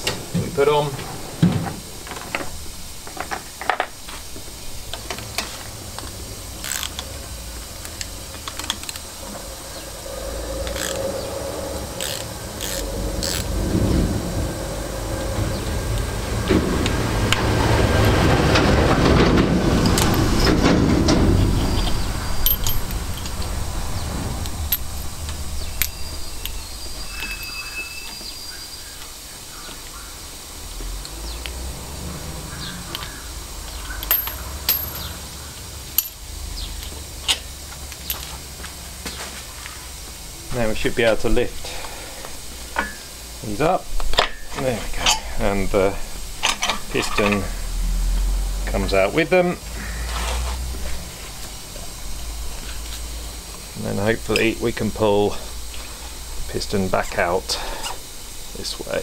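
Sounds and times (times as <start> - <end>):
ratchet clicking: 6.6 - 9.2, 10.6 - 11.1, 12.0 - 13.5, 21.7 - 23.5.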